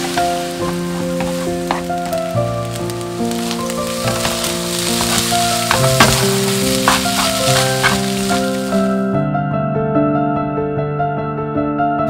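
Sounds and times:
rice sizzling in frying pan: 0.0 - 9.1
soft background music: 0.0 - 11.8.

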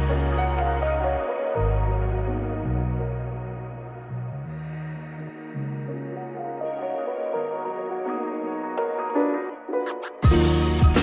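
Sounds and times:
slow ambient music with pads: 0.0 - 11.0.

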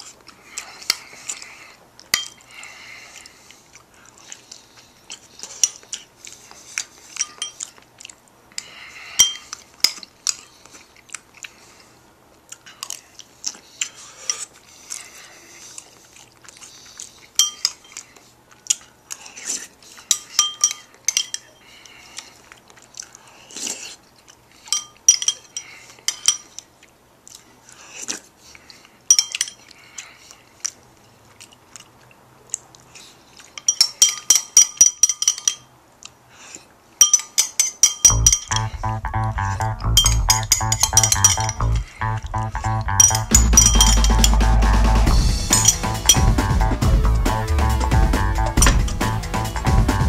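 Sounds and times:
chewing: 0.0 - 33.9
fork clinking and scraping dish: 40.0 - 41.6, 43.0 - 44.3, 45.5 - 46.2.

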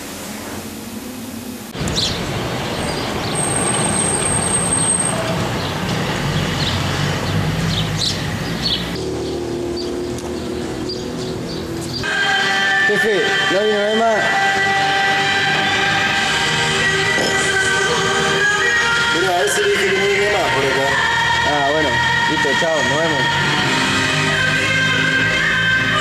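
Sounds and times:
traffic noise: 0.0 - 26.0
birds chirping: 1.8 - 14.5.

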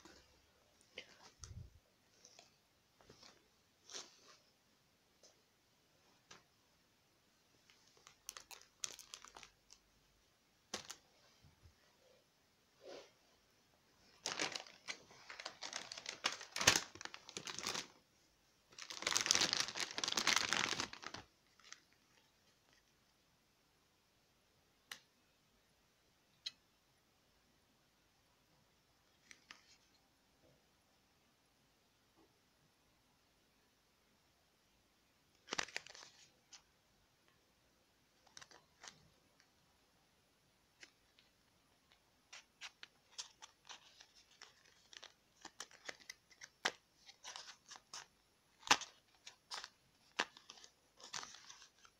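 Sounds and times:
plastic packaging crinkling: 7.6 - 9.9, 10.7 - 11.1, 14.0 - 18.0, 18.7 - 22.9, 35.4 - 36.6, 38.2 - 39.5, 40.8 - 51.9
sharp plastic crack: 14.2 - 17.9.

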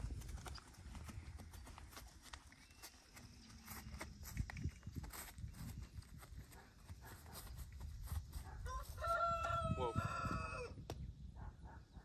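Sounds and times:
rooster crowing: 8.6 - 10.8.

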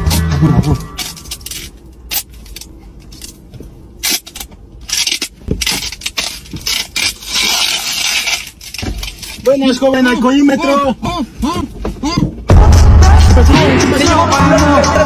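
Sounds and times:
duct tape ripping: 4.0 - 9.7.

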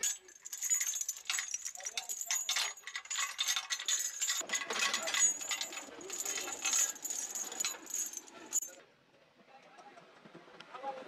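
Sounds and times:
steel chain rattling and clinking: 0.0 - 8.8.

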